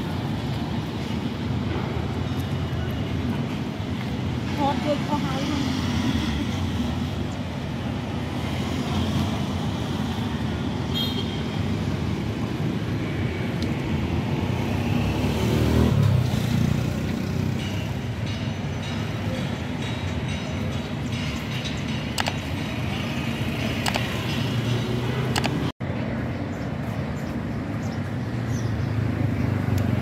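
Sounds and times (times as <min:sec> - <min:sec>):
street traffic: 0:00.0 - 0:30.0
vehicle passing: 0:14.3 - 0:17.5.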